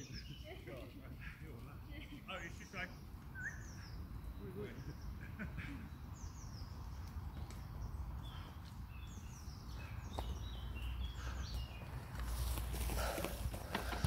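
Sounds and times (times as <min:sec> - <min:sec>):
songbirds chirping: 0:00.0 - 0:14.0
bike tyres rolling over leaves: 0:11.7 - 0:14.0.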